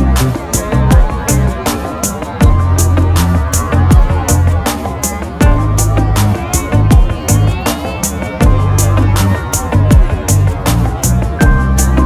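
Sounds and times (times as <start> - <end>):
sustained bass line: 0.0 - 1.6, 2.4 - 4.6, 5.4 - 7.6, 8.4 - 12.0.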